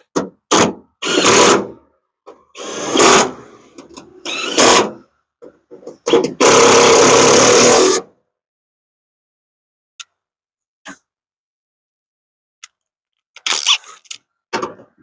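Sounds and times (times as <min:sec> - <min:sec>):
cordless drill driving bolts: 0:00.5 - 0:01.8, 0:02.6 - 0:05.0, 0:06.0 - 0:08.0.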